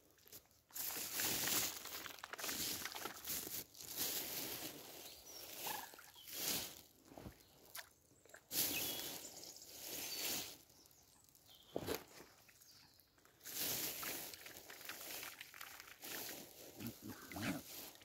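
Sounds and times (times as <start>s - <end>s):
swans slurping and splashing water: 0.0s - 6.6s, 13.3s - 18.0s.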